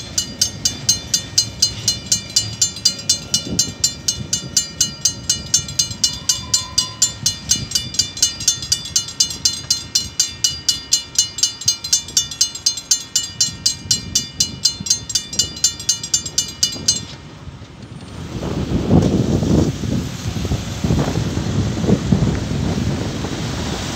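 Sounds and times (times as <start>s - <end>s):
level crossing bell ringing: 0.0s - 17.2s.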